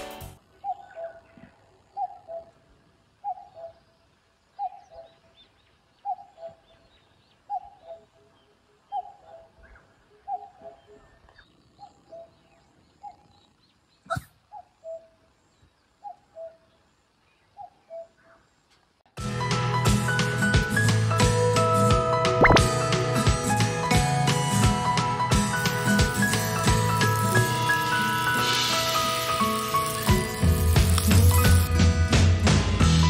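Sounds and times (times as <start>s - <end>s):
cuckoo calling: 0.5s - 4.0s, 4.6s - 15.4s, 16.0s - 18.4s, 25.6s - 31.7s
small birds chirping: 0.5s - 18.9s, 25.6s - 31.7s.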